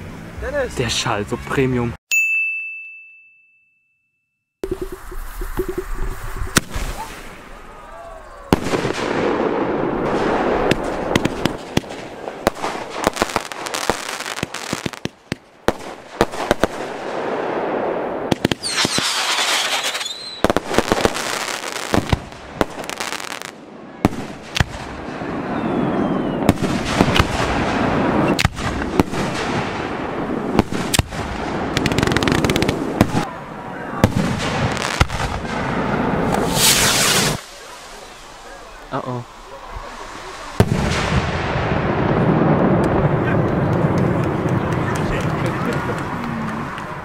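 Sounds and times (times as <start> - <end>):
crackling hiss: 4.6 - 23.6, 34.3 - 43.2
fireworks bangs: 4.6 - 47.0
high hissing whistle: 18.6 - 20.4, 36.3 - 40.6.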